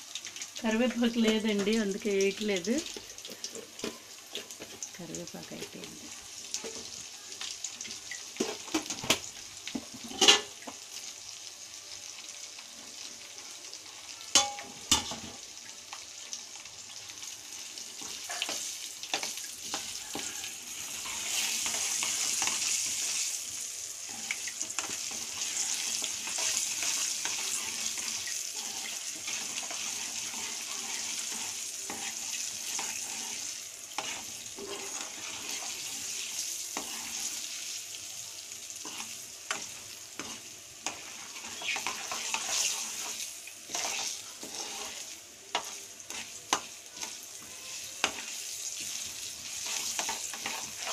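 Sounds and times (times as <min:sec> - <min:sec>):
spices sizzling in hot oil: 0:00.0 - 0:50.9
ladle stirring in pan: 0:17.7 - 0:23.3, 0:24.0 - 0:37.8, 0:38.8 - 0:50.9.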